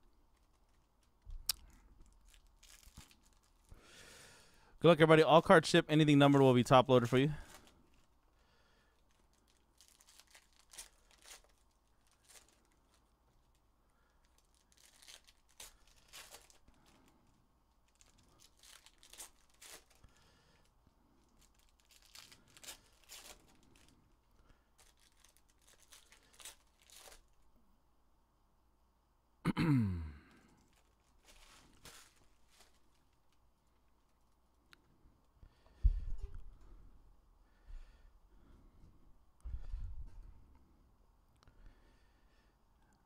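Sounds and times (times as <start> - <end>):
foil packs crinkling and tearing: 0.3 - 4.3, 6.2 - 27.4, 30.4 - 34.3
cards shuffled by hand: 14.3 - 17.0, 24.8 - 27.4.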